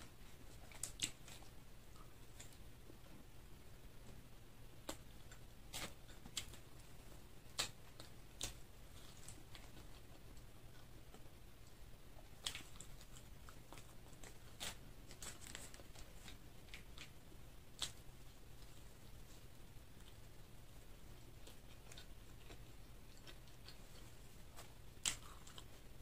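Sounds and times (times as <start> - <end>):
faint low hum: 0.0 - 26.0
person chewing: 21.4 - 25.8.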